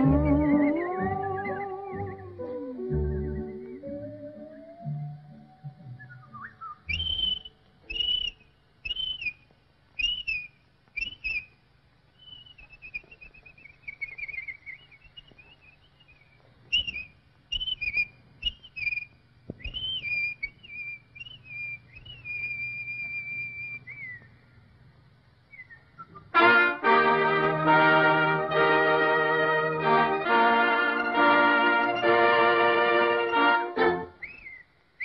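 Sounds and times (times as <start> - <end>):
cartoon bird whistles: 0.0 - 5.0, 5.7 - 9.4, 10.0 - 11.5, 12.2 - 24.3, 34.1 - 34.7.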